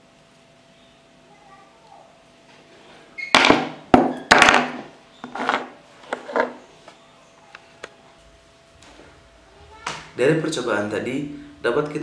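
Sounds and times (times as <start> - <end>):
objects knocking on tabletop: 3.4 - 6.6.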